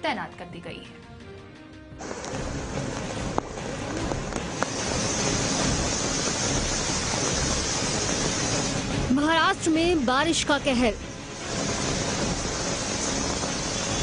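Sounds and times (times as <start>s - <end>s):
heavy rain on flooded street: 2.0s - 9.1s, 11.4s - 14.0s.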